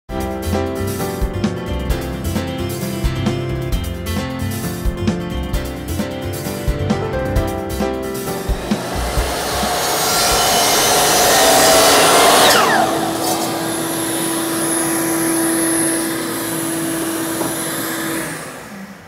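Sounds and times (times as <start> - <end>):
miter saw cutting wood: 8.3 - 19.0
dust vacuum humming and whining: 8.4 - 19.0
saw motor winding down: 8.4 - 19.0.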